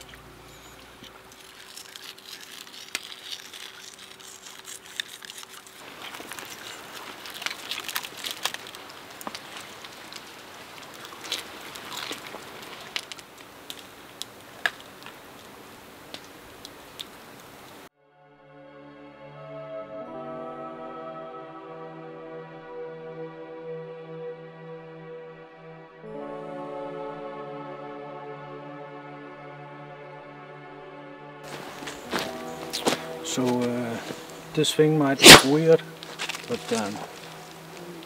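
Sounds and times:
wood fire crackling: 0.0s - 17.9s, 31.4s - 38.0s.

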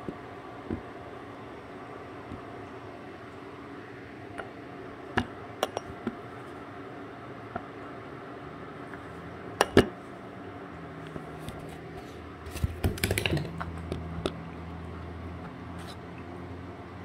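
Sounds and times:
steady low hum: 0.0s - 17.0s
clicks and taps on hard surface: 12.6s - 14.4s.

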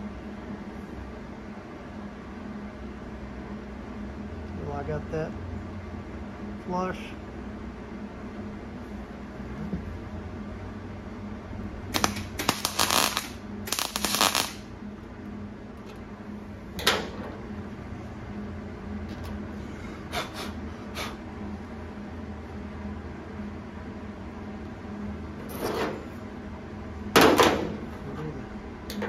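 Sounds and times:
low shop hum: 0.0s - 29.0s
welding arc crackling: 11.8s - 14.7s.

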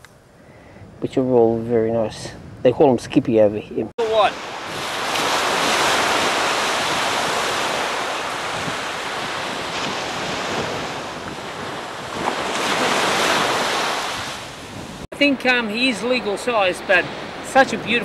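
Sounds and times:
wind rumbling on microphone: 0.0s - 15.1s
surf waves washing onto beach: 4.0s - 18.0s.

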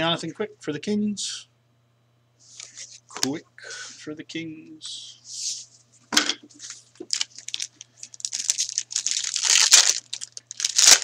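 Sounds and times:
foil wrapper crinkling: 6.6s - 11.0s.

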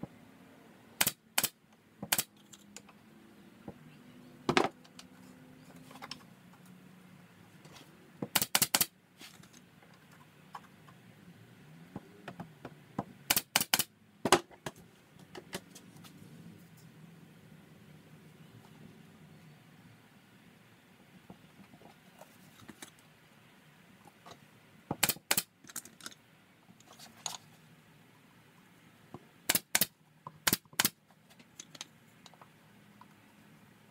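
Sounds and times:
nail gun snapping: 1.0s - 2.3s, 8.3s - 8.9s, 13.3s - 13.9s, 25.0s - 25.5s, 29.5s - 31.0s.

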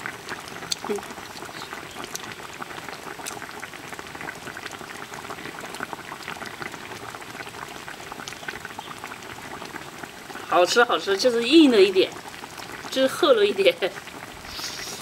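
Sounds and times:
stew boiling with popping bubbles: 0.0s - 15.0s.

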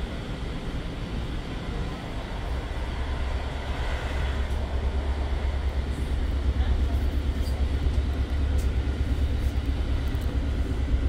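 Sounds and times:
train rumbling along track: 0.0s - 11.0s.

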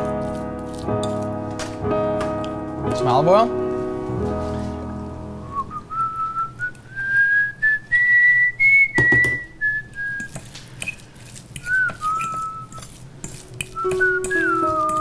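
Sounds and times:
person whistling slow tune: 5.4s - 10.4s, 11.6s - 12.8s, 13.6s - 15.0s.

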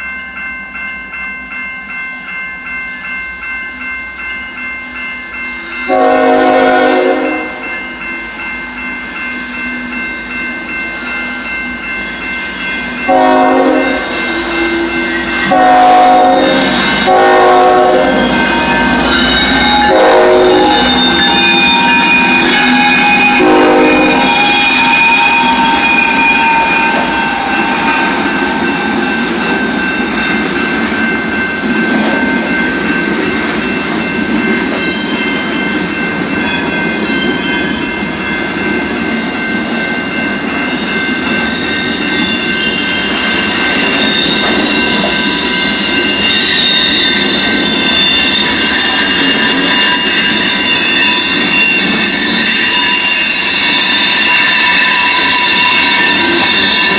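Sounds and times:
steel wheels rumbling on rail: 2.2s - 56.9s
locomotive horn: 5.9s - 7.6s, 13.1s - 21.3s, 23.0s - 24.6s
high-pitched wheel squeal: 14.2s - 28.9s, 41.5s - 56.9s.

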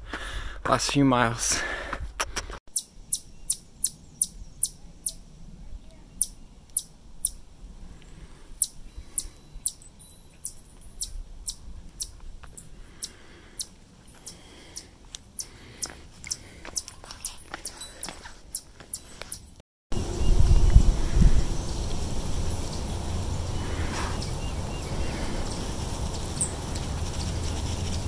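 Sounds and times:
footsteps on rocky ground: 15.8s - 19.4s.

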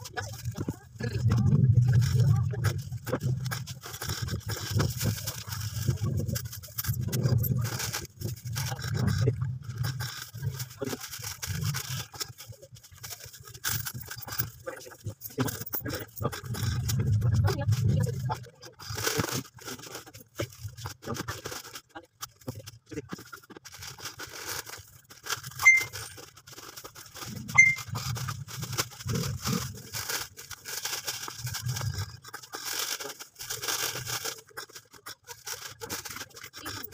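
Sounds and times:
clicks and scrapes: 0.0s - 36.9s
plastic bags rustling: 0.0s - 36.9s
electronic beep: 25.6s - 26.0s, 27.5s - 27.9s.

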